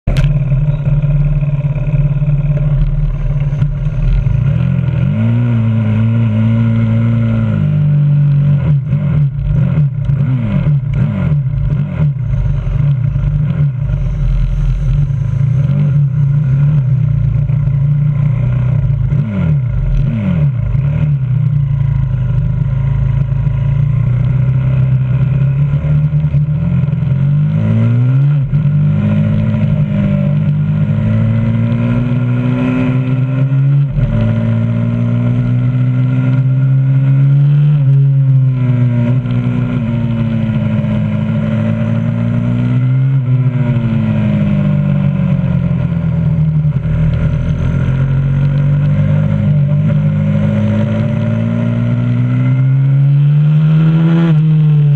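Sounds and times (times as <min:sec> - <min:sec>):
motorbike engine throttle blips: 0:00.0 - 0:07.5.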